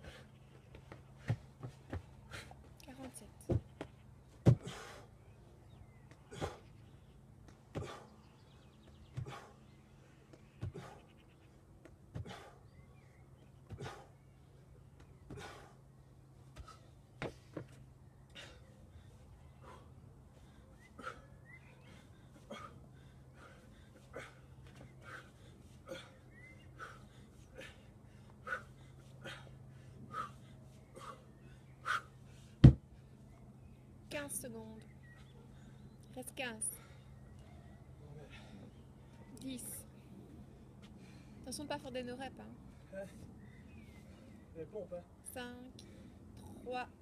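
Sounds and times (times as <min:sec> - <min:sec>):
steady low hum: 0:00.0 - 0:47.0
man breathing hard: 0:04.5 - 0:05.2, 0:07.7 - 0:08.2, 0:09.2 - 0:11.2, 0:12.1 - 0:12.7, 0:13.7 - 0:14.2, 0:15.3 - 0:15.9, 0:18.3 - 0:33.3, 0:36.8 - 0:39.2.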